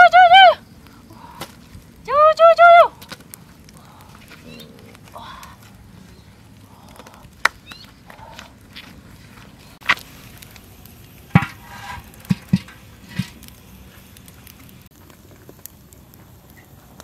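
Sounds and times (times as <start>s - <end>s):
wood fire crackling: 0.0s - 17.0s
knocks and pops: 11.3s - 11.6s, 12.2s - 13.4s.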